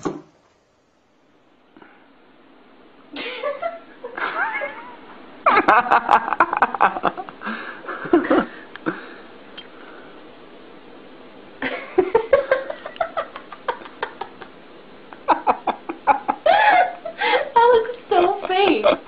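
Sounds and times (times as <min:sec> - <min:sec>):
people laughing: 0:03.2 - 0:08.6, 0:11.6 - 0:14.6, 0:15.2 - 0:19.0.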